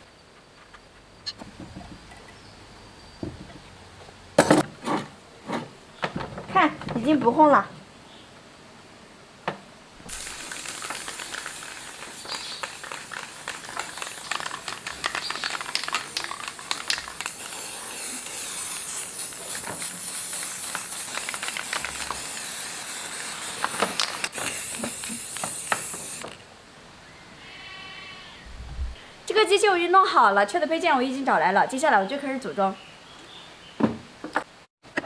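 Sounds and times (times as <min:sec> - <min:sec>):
spray-paint can hissing: 0:10.1 - 0:26.4.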